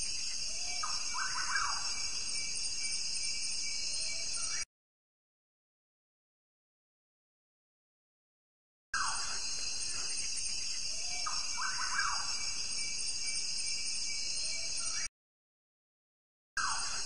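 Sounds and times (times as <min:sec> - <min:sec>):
insect chorus: 0:00.0 - 0:04.7, 0:09.0 - 0:15.1, 0:16.6 - 0:17.0.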